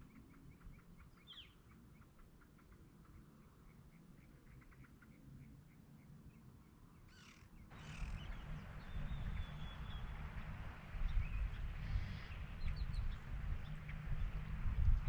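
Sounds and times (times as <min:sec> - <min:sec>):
harsh bird calls: 0:07.1 - 0:14.0
wind rumble on microphone: 0:07.7 - 0:15.0.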